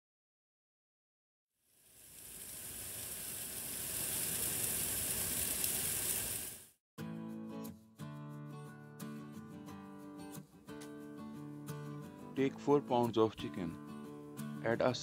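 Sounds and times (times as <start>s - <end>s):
chicken sizzling on grill: 1.6s - 6.8s
acoustic guitar music: 7.0s - 15.0s.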